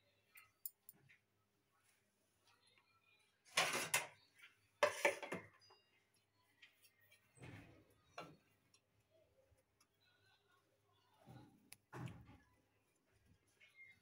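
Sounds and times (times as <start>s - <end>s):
scraping rustles on counter: 3.5s - 4.2s, 4.8s - 5.5s.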